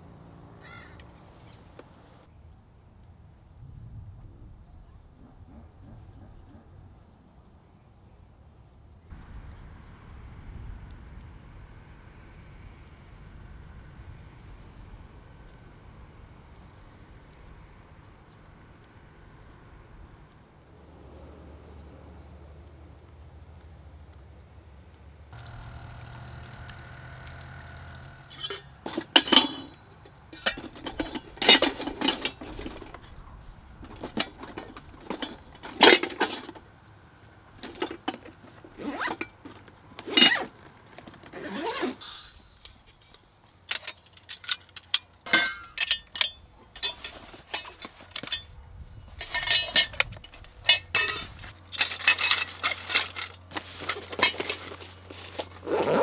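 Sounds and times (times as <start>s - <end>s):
metal cookware clinking: 28.3s - 29.8s, 44.9s - 48.5s, 49.2s - 50.1s, 50.7s - 53.2s
soft cases rustling: 51.4s - 56.0s.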